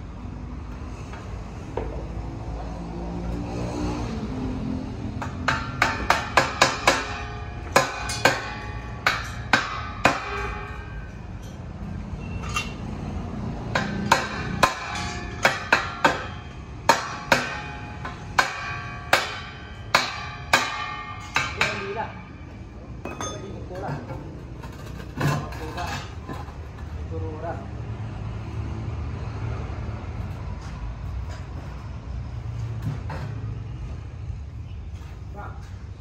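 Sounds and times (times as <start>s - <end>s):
hammer striking metal pipe: 5.2s - 11.6s, 13.7s - 23.5s.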